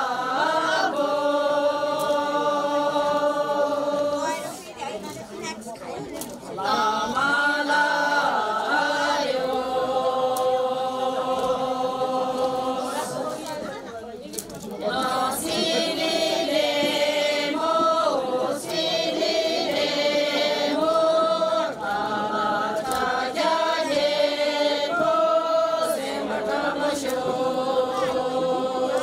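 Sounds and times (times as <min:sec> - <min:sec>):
group singing in unison: 0:00.0 - 0:04.9, 0:06.5 - 0:13.8, 0:14.6 - 0:29.0.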